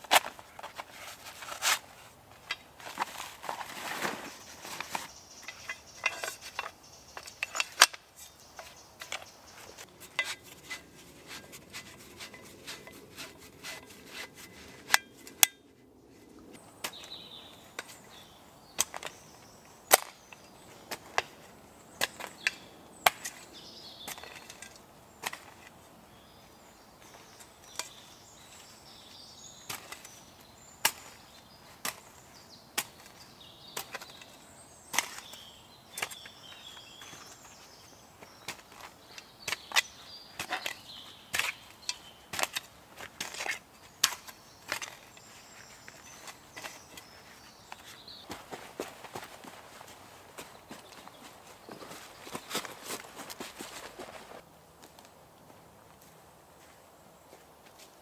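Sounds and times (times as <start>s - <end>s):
shovel chopping into soil: 18.8s - 20.2s, 22.0s - 25.6s, 29.6s - 30.2s, 30.8s - 32.2s, 32.8s - 34.3s, 34.9s - 37.4s, 38.3s - 45.3s.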